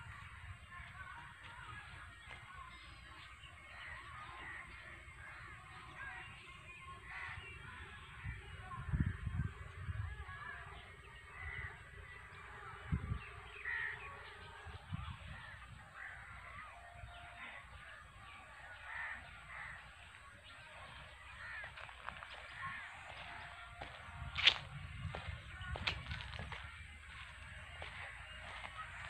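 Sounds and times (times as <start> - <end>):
crows cawing: 3.6 - 6.3, 7.0 - 7.6, 11.3 - 29.0.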